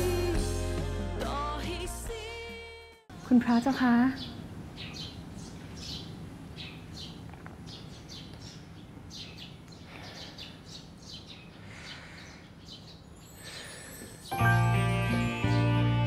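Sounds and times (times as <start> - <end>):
small birds chirping: 3.2 - 14.4.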